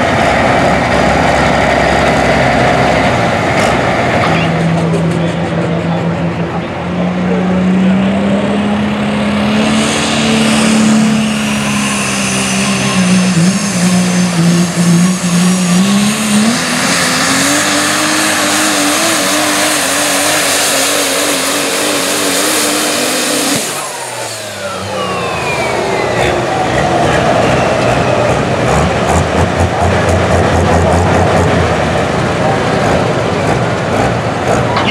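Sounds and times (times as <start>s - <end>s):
diesel truck engine running flat out: 0.0s - 34.9s
high whistle winding down: 10.6s - 14.5s, 23.5s - 28.6s.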